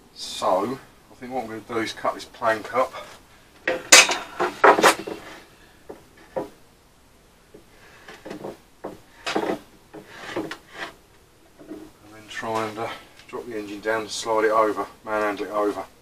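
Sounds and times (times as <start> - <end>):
wood scraping and rubbing: 3.0 - 6.6, 8.1 - 13.1
wooden plank knocking: 5.9 - 6.6, 8.2 - 10.6.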